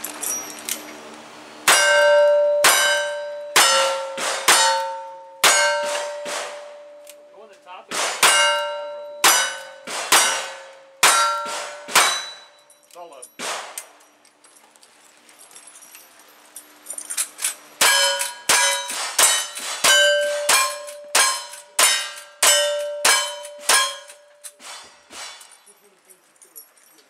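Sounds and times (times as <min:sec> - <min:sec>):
steel targets ringing: 0:01.6 - 0:13.8, 0:17.8 - 0:25.8.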